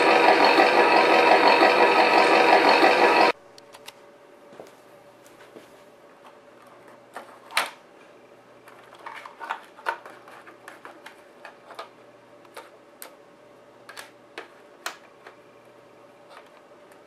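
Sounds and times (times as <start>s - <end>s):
clicks and rattles of handled parts: 8.7s - 11.9s.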